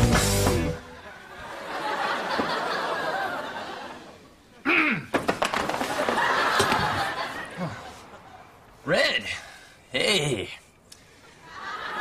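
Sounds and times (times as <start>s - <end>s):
studio audience laughing: 0.9s - 4.3s, 5.9s - 8.4s, 11.3s - 12.0s
sharp knocks and clatters: 5.1s - 7.0s.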